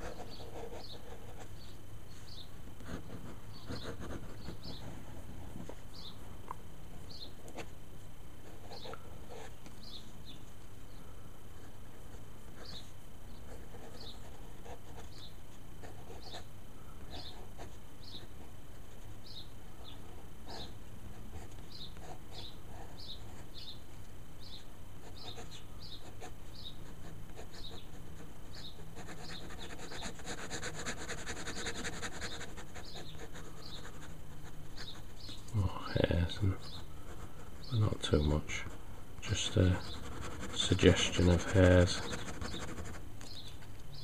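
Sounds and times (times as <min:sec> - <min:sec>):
steady low hum: 0:00.0 - 0:44.0
ink pen scratching on paper: 0:02.8 - 0:05.8, 0:25.1 - 0:35.3, 0:38.5 - 0:43.0.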